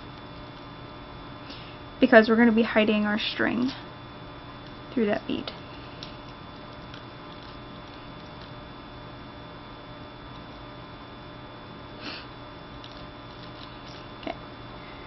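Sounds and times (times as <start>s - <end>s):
electrical mains hum: 0.0s - 15.0s
person sniffing: 12.0s - 12.3s.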